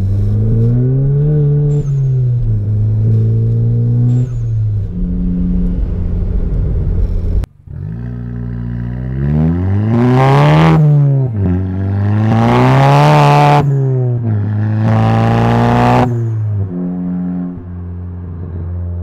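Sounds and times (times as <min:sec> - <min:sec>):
car engine accelerating hard: 0:00.0 - 0:19.0.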